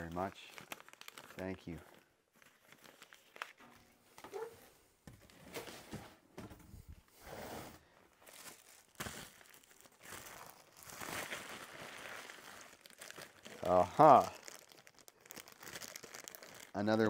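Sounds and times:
packaging crinkling and rustling: 0.0 - 4.5, 8.1 - 17.0.

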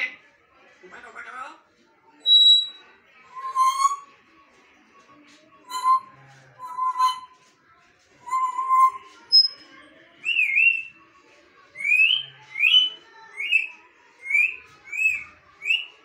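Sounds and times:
parrot whistling: 2.2 - 4.1, 5.7 - 7.4, 8.3 - 9.6, 10.3 - 10.9, 11.8 - 15.9.

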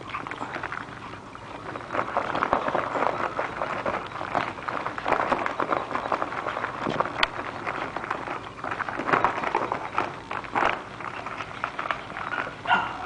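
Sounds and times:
foil bag crinkling and rustling: 0.0 - 12.8.

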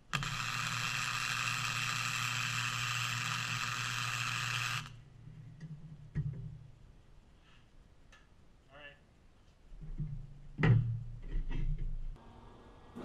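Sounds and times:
welding arc hissing: 0.0 - 5.0.

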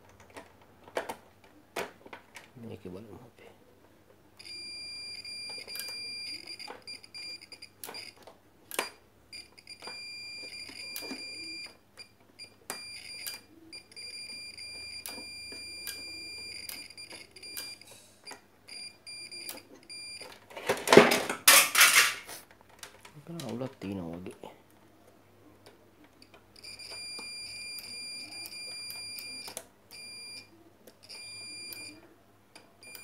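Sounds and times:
multimeter continuity beep: 4.4 - 8.2, 8.8 - 20.3, 26.6 - 32.0, 32.8 - 33.0.

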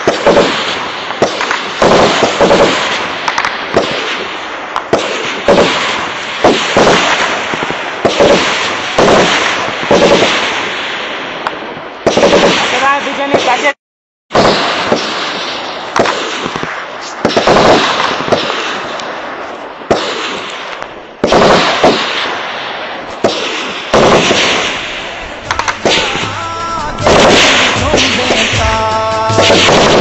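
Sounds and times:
gunshots with echo: 0.0 - 30.0.

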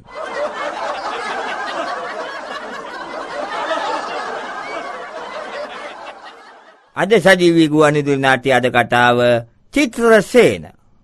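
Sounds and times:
group of people laughing: 0.0 - 6.9.

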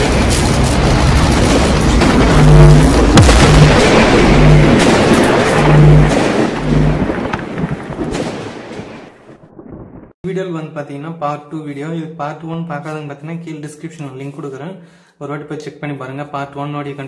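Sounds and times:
rushing crackling swell: 0.0 - 8.0
sharp crack: 0.0 - 9.8
deep booms: 0.0 - 10.2
pulsing low note: 1.4 - 7.3.

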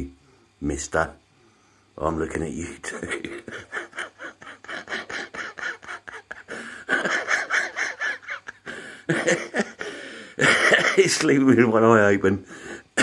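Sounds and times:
man laughing softly: 2.8 - 11.4.

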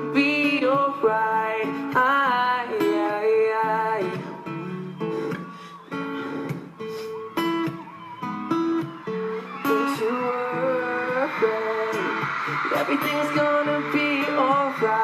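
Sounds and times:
man singing: 0.0 - 4.6, 9.6 - 15.0
acoustic guitar chords and strums: 0.0 - 15.0.

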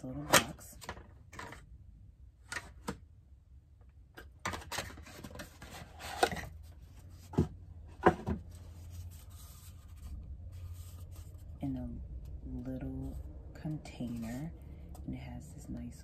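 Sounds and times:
cardboard rubbing and scraping: 5.0 - 11.6.

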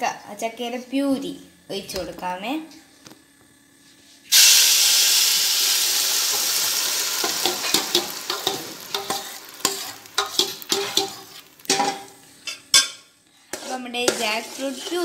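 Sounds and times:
puree sizzling in hot pan: 4.3 - 12.7, 13.5 - 15.0
metal spoon scraping pans: 7.2 - 15.0.

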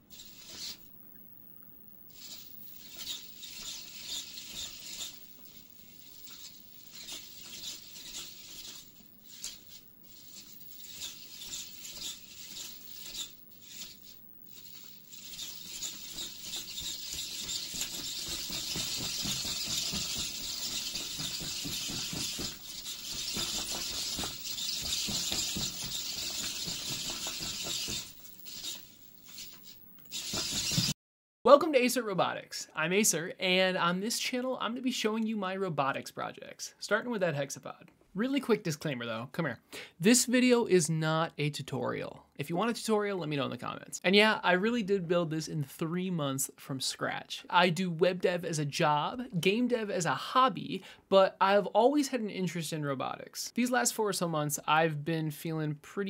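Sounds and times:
servo motors whining and clicking: 2.1 - 30.9.

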